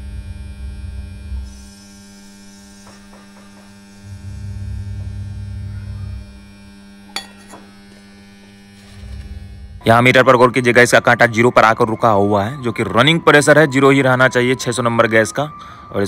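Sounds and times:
refrigerator compressor hum: 0:00.0 - 0:10.3.

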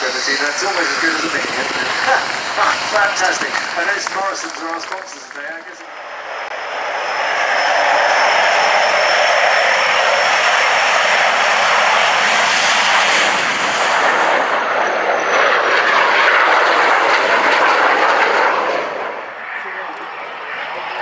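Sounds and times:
high whine: 0:00.0 - 0:15.6
jet engines roaring: 0:00.0 - 0:21.0.

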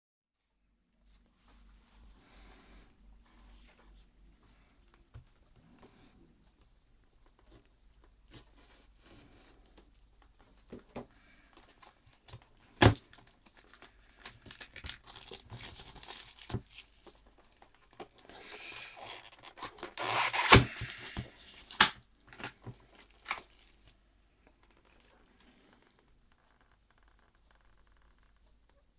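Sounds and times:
cardboard box tearing: 0:19.6 - 0:21.0.

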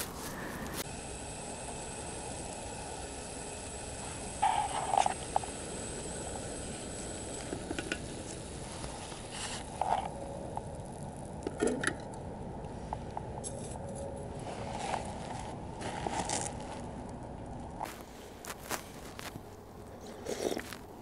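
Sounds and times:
steady background hiss: 0:00.0 - 0:21.0.

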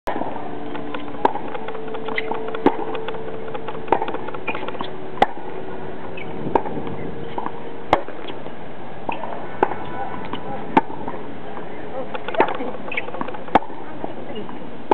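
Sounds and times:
tennis ball struck with racket: 0:00.1 - 0:05.5, 0:06.2 - 0:08.4, 0:09.1 - 0:11.2, 0:12.1 - 0:13.8
tennis ball bouncing: 0:00.1 - 0:14.2.

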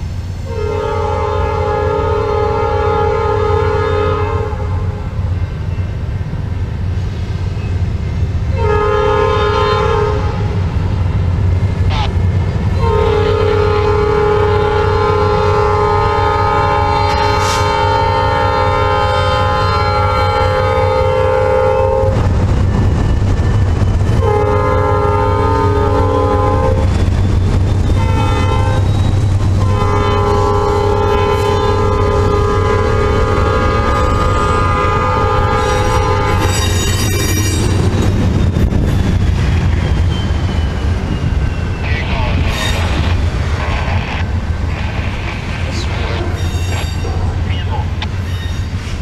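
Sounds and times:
diesel locomotive rumble: 0:00.0 - 0:49.0
locomotive horn blasts: 0:00.4 - 0:05.0, 0:08.5 - 0:10.6, 0:12.8 - 0:22.2, 0:24.2 - 0:26.9, 0:28.0 - 0:28.9, 0:29.6 - 0:36.6.

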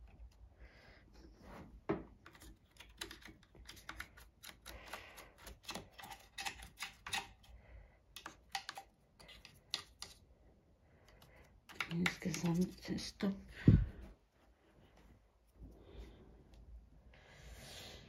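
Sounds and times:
metal parts clicking and tapping: 0:08.2 - 0:10.2.

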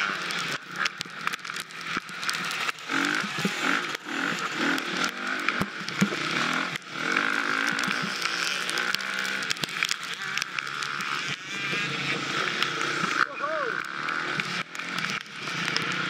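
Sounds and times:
dirt bike engine revving: 0:00.0 - 0:16.0
bike knocks and clicks: 0:00.5 - 0:11.4.

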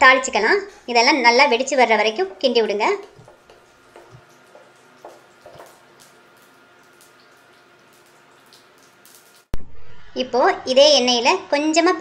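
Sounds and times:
seeds sizzling in hot oil: 0:00.6 - 0:09.6
spatula knocking: 0:00.7 - 0:06.3.

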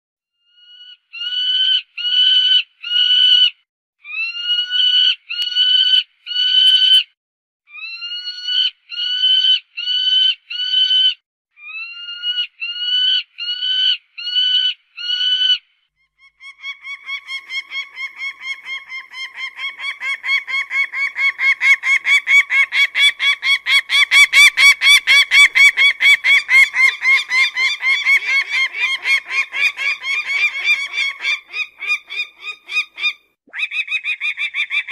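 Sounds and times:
falcon calling: 0:16.3 - 0:34.9.

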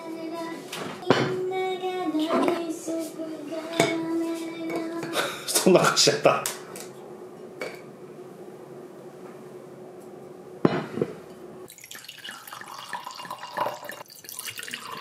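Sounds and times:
liquid pouring into glass: 0:11.7 - 0:15.0.

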